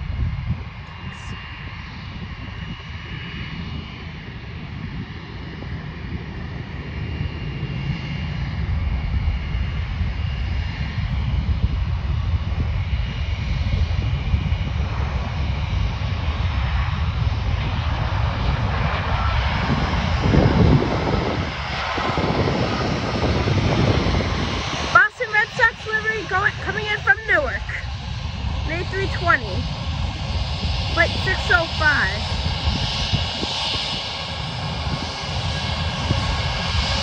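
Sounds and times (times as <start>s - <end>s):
jet engines rumbling and whining: 0.0s - 37.0s.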